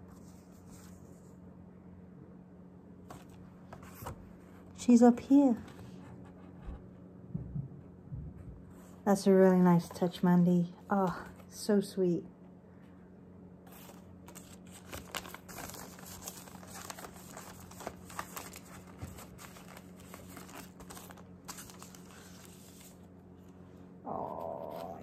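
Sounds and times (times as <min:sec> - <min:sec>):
paper rustling and crinkling: 0:00.0 - 0:01.4, 0:03.0 - 0:04.8, 0:13.7 - 0:23.2.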